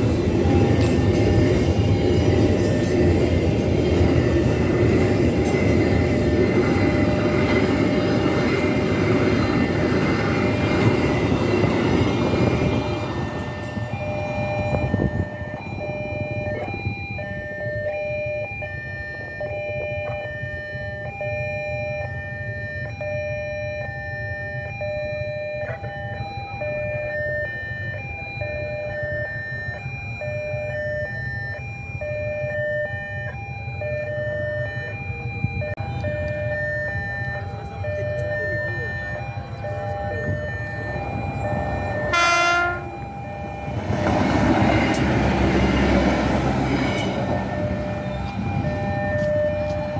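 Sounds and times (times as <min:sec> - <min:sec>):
freight train rumbling past: 0:00.0 - 0:19.3, 0:32.5 - 0:49.9
level-crossing warning alarm: 0:00.0 - 0:49.9.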